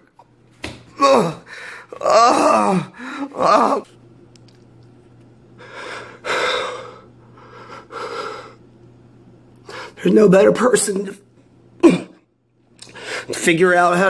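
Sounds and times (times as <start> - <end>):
man groaning: 0.9 - 3.9.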